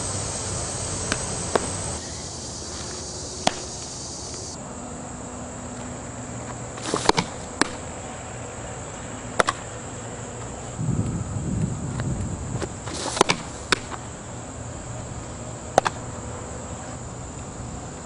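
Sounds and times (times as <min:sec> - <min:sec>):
high insect drone: 0:00.0 - 0:18.0
softball popping into gloves: 0:01.1 - 0:01.8, 0:03.4 - 0:03.7.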